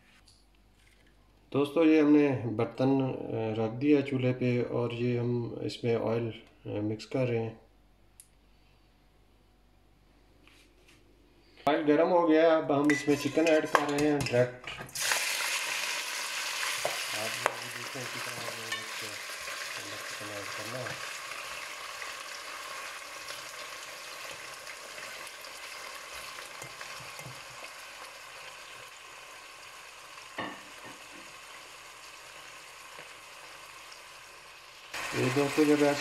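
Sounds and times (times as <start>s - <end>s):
chicken sizzling in hot oil: 15.0s - 36.0s.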